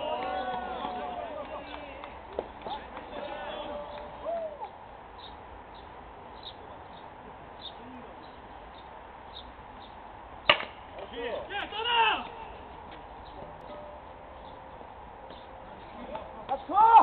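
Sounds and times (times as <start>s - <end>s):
players shouting: 0.0s - 4.8s, 11.1s - 12.6s, 16.5s - 17.0s
baseball bat hitting ball: 10.5s - 10.8s.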